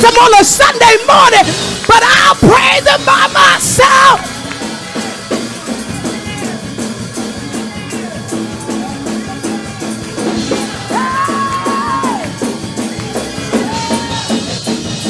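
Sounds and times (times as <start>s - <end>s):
woman shouting high: 0.0s - 4.2s, 10.9s - 12.3s
drum kit and instruments playing: 0.0s - 15.0s.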